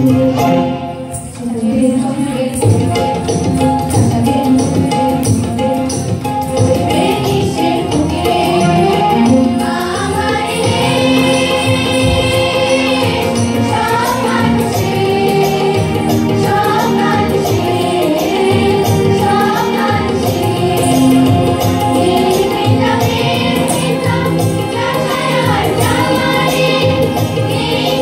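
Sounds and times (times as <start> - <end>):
keyboard accompaniment: 0.0 - 28.0
girls choir singing: 6.8 - 28.0.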